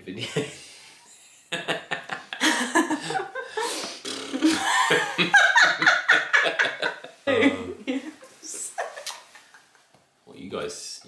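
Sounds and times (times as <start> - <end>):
woman laughing: 1.6 - 3.7, 4.4 - 9.8.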